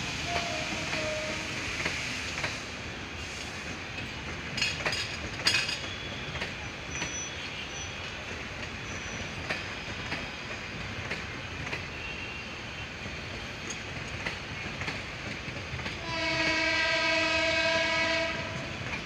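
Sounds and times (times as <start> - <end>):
train rumbling on track: 0.0 - 19.0
wheels clacking over rail joints: 3.9 - 7.4, 8.1 - 12.2, 13.0 - 16.8.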